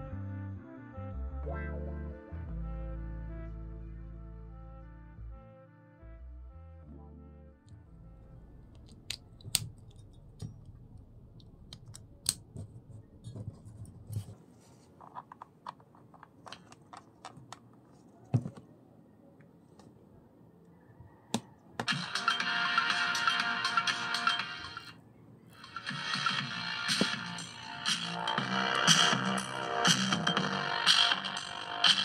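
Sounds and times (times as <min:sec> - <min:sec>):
low hum: 0:06.4 - 0:14.3
audio plug clicking and tapping: 0:08.7 - 0:10.7.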